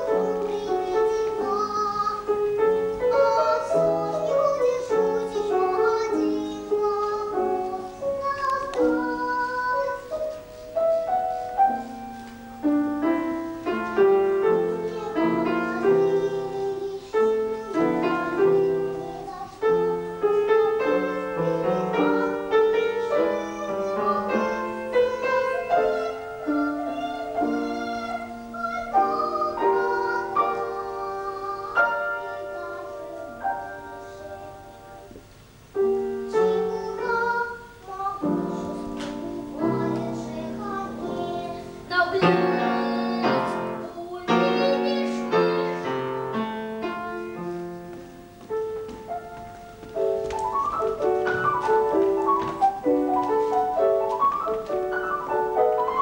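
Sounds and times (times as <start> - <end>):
children singing: 0.0 - 10.4, 13.1 - 35.1, 36.3 - 47.5
piano accompaniment: 0.0 - 56.0.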